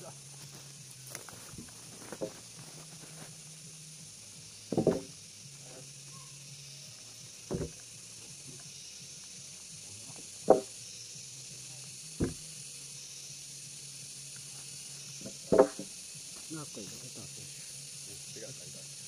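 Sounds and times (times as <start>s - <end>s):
steady high hiss: 0.0s - 19.0s
wooden boards knocking: 4.7s - 5.1s, 7.5s - 7.8s, 10.5s - 10.7s, 12.2s - 12.4s, 15.5s - 15.9s.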